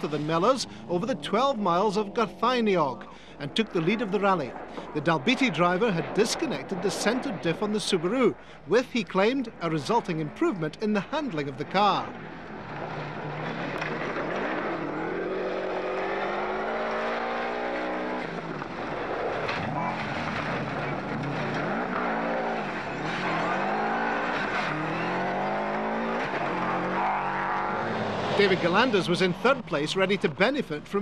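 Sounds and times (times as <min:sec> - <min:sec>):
rally car engine at full throttle: 0:10.9 - 0:30.2.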